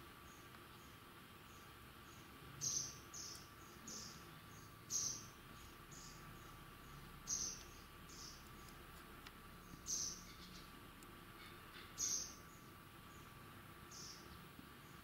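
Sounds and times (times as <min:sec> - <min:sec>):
bird giving high chirps: 0:02.6 - 0:08.7, 0:09.6 - 0:10.8, 0:11.7 - 0:13.3.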